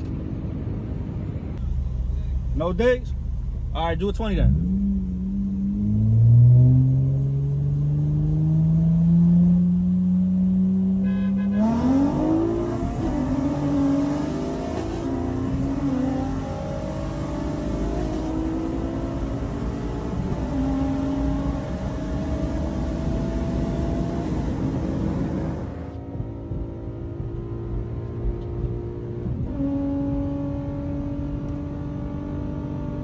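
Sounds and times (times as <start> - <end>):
car engine revving through gears: 4.4 - 33.0.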